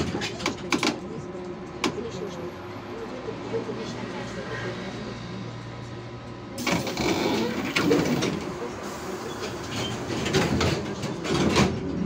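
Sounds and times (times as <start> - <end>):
knocks and rattles of bus body: 0.0 - 2.2, 6.6 - 12.0
trolleybus running noise: 0.0 - 12.0.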